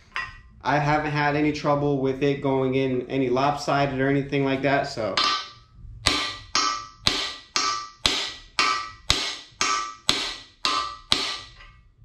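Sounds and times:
hammer striking metal: 5.1s - 11.7s.

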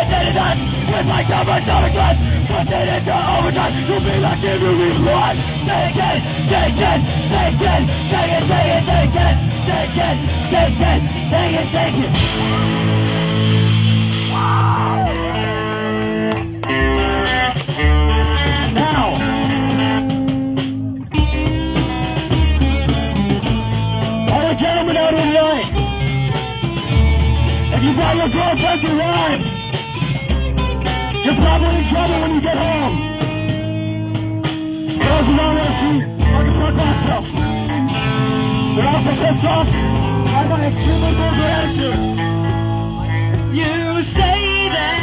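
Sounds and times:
shouted vocals: 0.0s - 13.1s, 14.3s - 15.6s
bass guitar: 0.0s - 45.0s
distorted electric guitars: 0.0s - 45.0s
drums: 0.0s - 45.0s.

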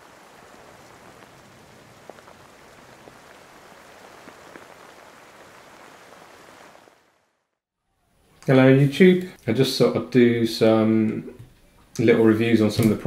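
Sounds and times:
steady rain hiss: 0.0s - 7.6s, 8.2s - 13.0s.

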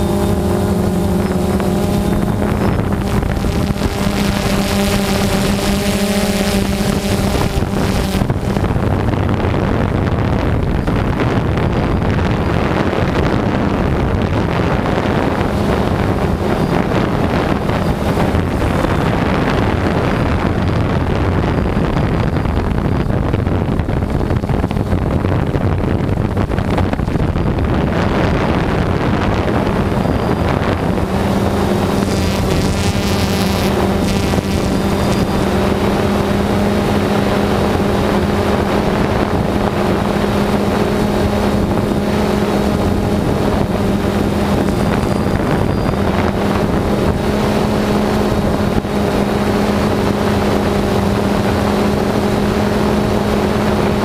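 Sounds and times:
drone propellers buzzing: 0.0s - 54.0s
wind buffeting microphone: 0.0s - 54.0s.

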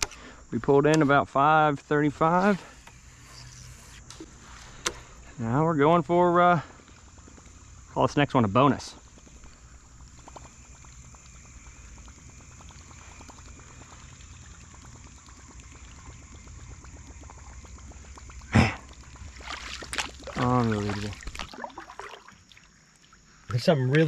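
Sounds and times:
lure churning water: 1.9s - 23.5s
lure splashing into water: 17.2s - 23.1s.

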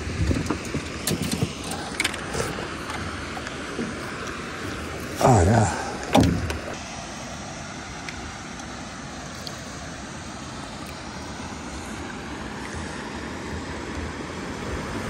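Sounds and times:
wind buffeting microphone: 0.0s - 4.9s
faint lapping lake water: 0.0s - 15.0s.

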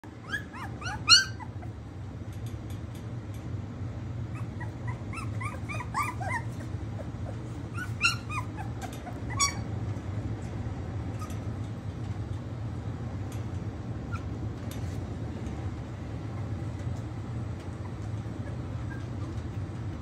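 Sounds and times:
puppies whimpering and yipping: 0.1s - 1.8s, 4.2s - 9.8s, 14.0s - 14.4s, 17.6s - 20.0s.

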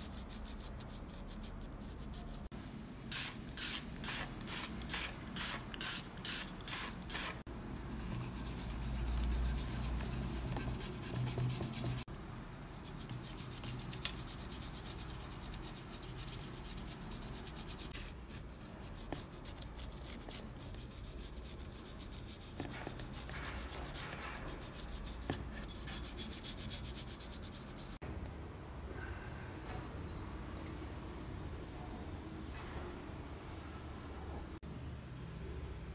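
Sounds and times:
brush scrubbing: 8.0s - 12.1s, 12.8s - 28.0s.

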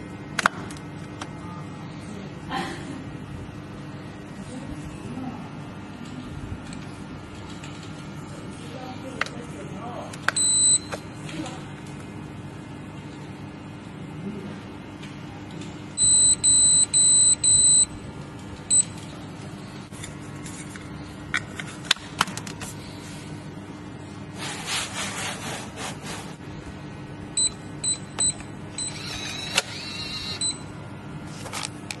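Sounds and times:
electronic lock beeping: 10.4s - 11.0s, 16.0s - 18.0s, 18.7s - 19.0s, 27.4s - 30.7s
short keypad beeps: 10.4s - 11.0s, 16.0s - 18.0s, 18.7s - 19.0s, 27.4s - 30.7s.

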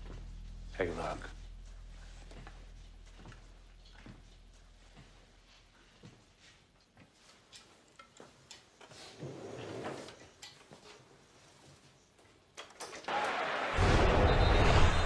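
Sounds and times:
small clicks and rustles: 1.8s - 9.2s, 9.9s - 13.1s
television crowd noise: 12.9s - 15.0s.

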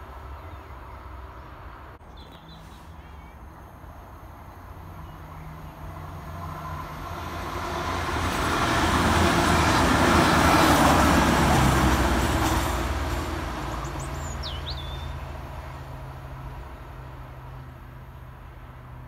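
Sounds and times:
train passing at speed: 0.0s - 19.0s
bird chirping: 2.0s - 3.4s, 13.8s - 15.2s.

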